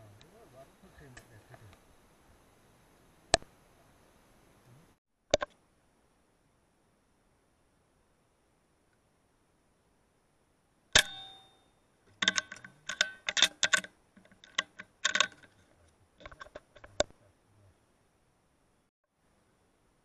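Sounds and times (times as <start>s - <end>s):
metallic clicks of rifle handling: 12.2s - 15.6s.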